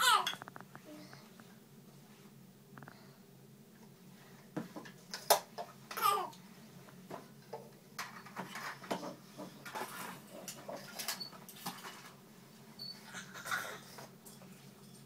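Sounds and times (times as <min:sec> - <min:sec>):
children handling toys: 0:08.0 - 0:12.2.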